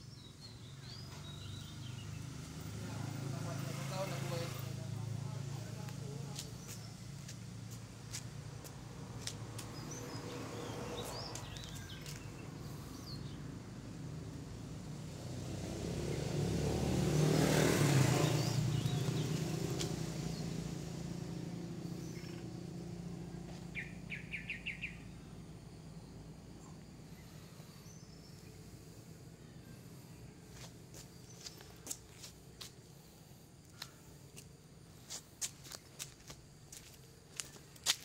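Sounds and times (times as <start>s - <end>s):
road vehicle passing: 0.0s - 38.0s
bird chirps: 9.7s - 13.4s, 21.9s - 22.6s, 23.7s - 25.3s.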